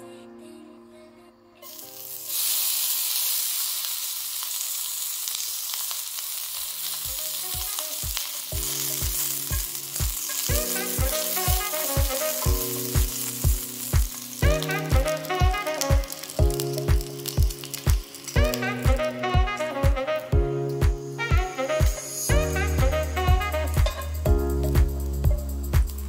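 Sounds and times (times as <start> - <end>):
fat sizzling in a pan: 1.6 - 26.0
background music with steady beat: 7.0 - 26.0.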